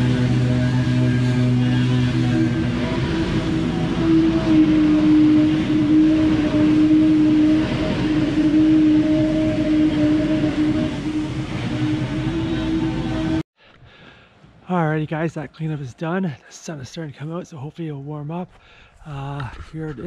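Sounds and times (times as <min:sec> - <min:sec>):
leaf blower drone: 0:00.0 - 0:13.4.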